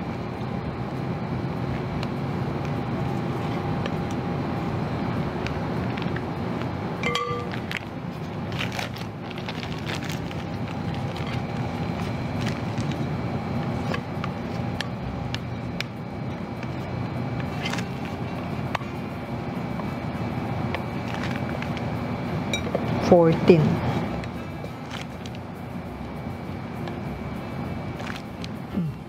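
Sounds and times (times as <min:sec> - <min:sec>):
steady background hum: 0:00.0 - 0:29.0
spoon clinking against glass bowl: 0:07.0 - 0:07.6.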